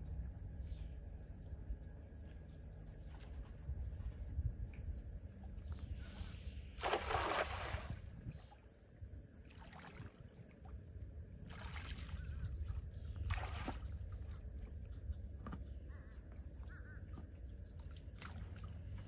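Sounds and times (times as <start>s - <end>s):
water splashing: 6.8s - 8.1s, 11.5s - 14.5s.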